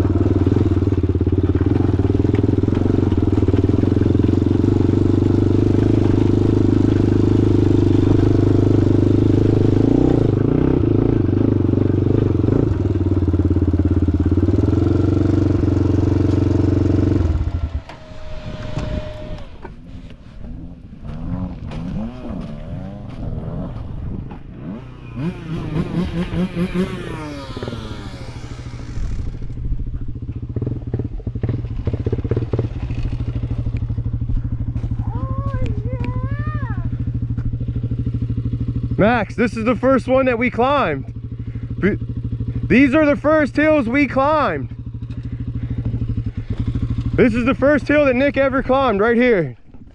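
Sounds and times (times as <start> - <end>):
engines revving: 0.0 - 29.6, 35.9 - 49.5
atv engine running at speed: 0.0 - 49.9
engine idling: 30.8 - 49.3.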